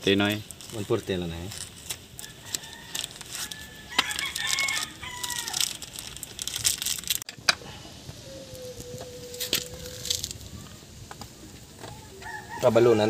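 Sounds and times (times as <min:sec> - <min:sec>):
plastic packaging crinkling: 0:00.0 - 0:07.3, 0:09.3 - 0:10.5
rooster crowing: 0:02.2 - 0:06.0, 0:11.8 - 0:13.0.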